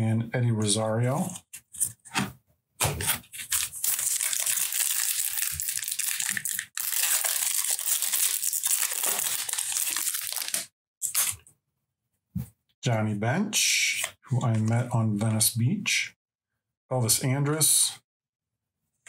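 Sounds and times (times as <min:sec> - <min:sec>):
foil wrapper crinkling and tearing: 0:03.2 - 0:11.4.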